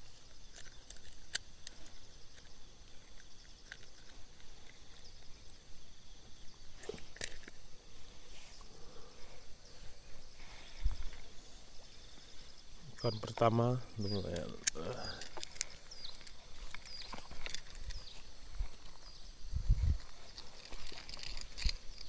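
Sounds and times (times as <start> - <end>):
insect chorus: 0.0 - 22.0
clicks and rustling: 0.5 - 5.1, 6.8 - 7.6, 14.3 - 19.1, 20.0 - 22.0.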